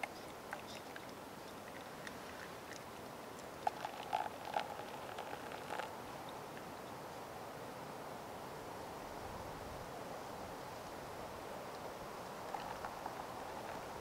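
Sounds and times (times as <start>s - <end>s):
steady low hiss: 0.0s - 14.0s
water pouring onto coffee grounds: 0.5s - 6.0s, 12.4s - 14.0s.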